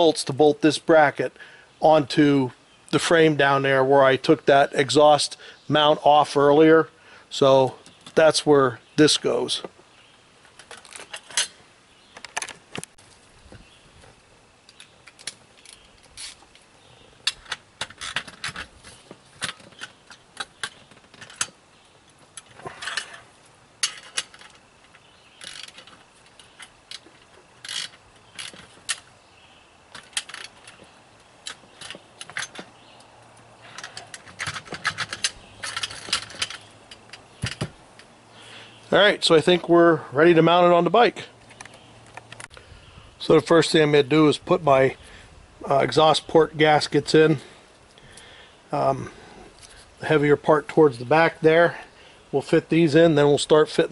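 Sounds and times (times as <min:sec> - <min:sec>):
metal parts clicking and clinking: 0:10.6 - 0:11.6, 0:17.2 - 0:21.6, 0:22.3 - 0:29.1, 0:29.9 - 0:32.8, 0:33.6 - 0:38.1.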